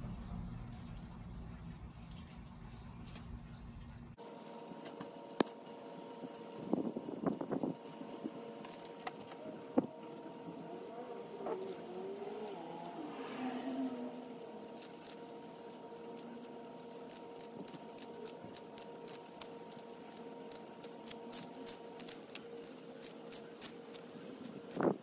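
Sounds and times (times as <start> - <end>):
faint steady hum: 0.0 - 25.0
tortoise biting lettuce: 7.8 - 25.0.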